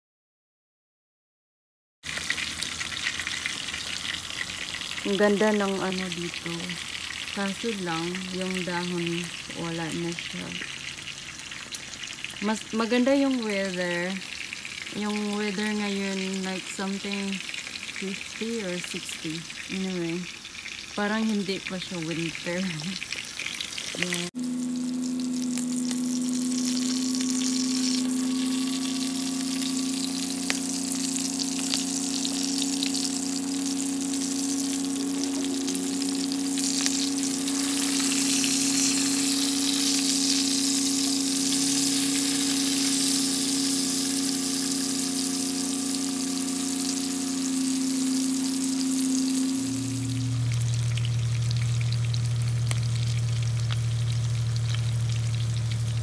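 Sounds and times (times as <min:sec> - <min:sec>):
fish frying in hot oil: 0:02.0 - 0:56.0
steady hum: 0:04.9 - 0:11.0, 0:23.9 - 0:56.0.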